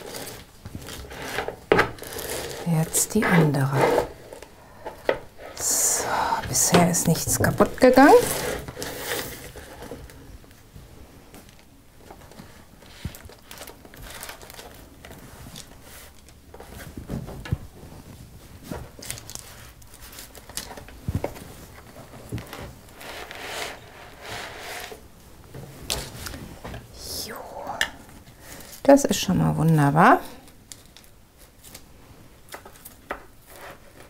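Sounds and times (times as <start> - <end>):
paper rustling: 12.0 - 17.0.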